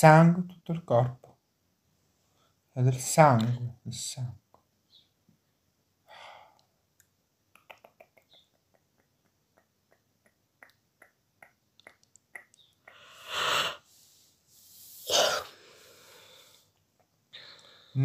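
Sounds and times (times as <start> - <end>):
man breathing out: 12.9 - 14.0, 14.7 - 16.7.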